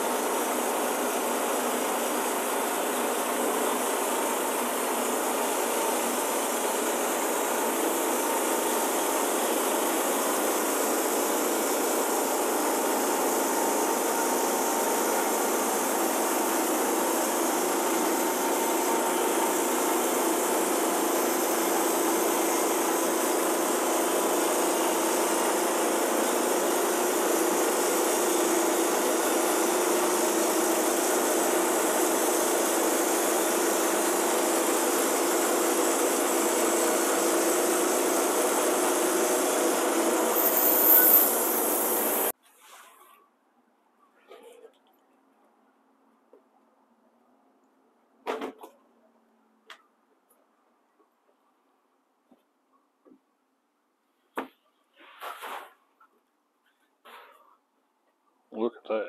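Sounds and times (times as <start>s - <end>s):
bandsaw sawmill cutting log: 0.0s - 42.3s.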